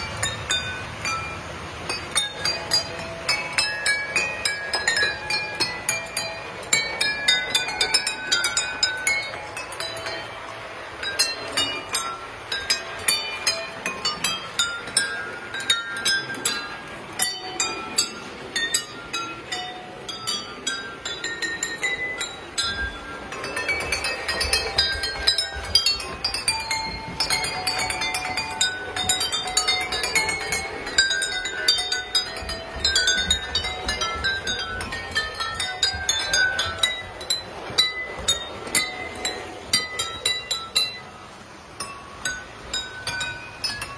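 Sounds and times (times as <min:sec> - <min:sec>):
glasses clinking in a tune: 0:00.0 - 0:43.9.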